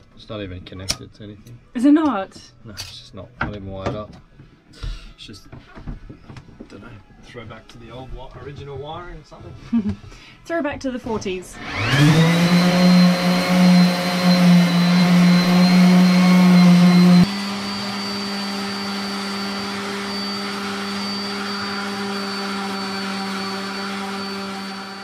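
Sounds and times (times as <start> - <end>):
orbital sander running: 11.6 - 25.0.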